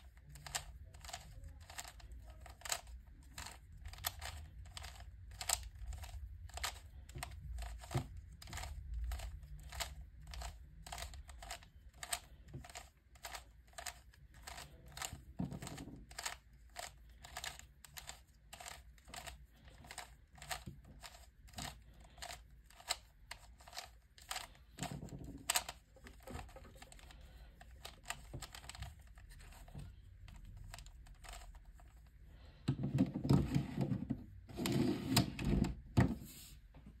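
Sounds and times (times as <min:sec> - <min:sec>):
puzzle cube clicking: 0:00.4 - 0:29.7.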